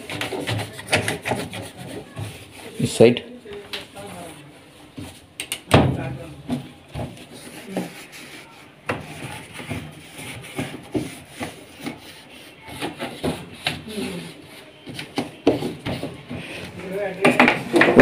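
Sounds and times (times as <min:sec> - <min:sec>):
cloth wiping on plastic: 0:00.0 - 0:03.2, 0:07.1 - 0:17.1.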